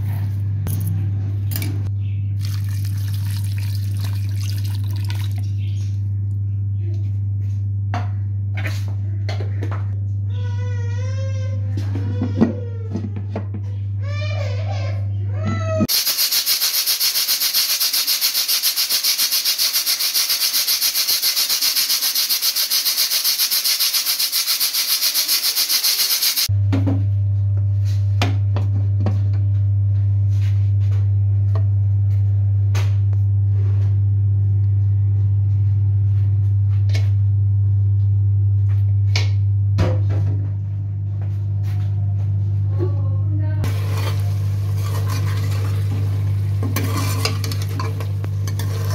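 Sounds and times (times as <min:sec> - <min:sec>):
pressure cooker venting steam: 0:15.9 - 0:26.5, 0:43.7 - 0:48.9.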